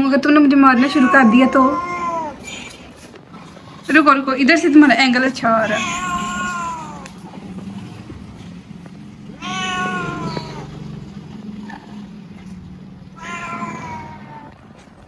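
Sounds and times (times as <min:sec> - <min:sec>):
cat meowing: 0:00.6 - 0:02.6, 0:05.6 - 0:07.2, 0:09.4 - 0:10.8, 0:13.2 - 0:14.6.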